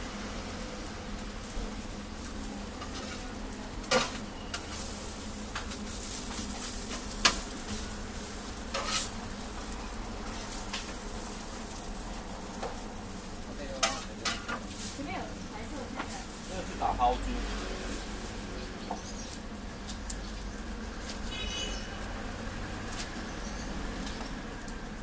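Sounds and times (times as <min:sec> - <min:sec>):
food sizzling on griddle: 0:00.0 - 0:25.0
metal scraper scraping plate: 0:08.7 - 0:09.1.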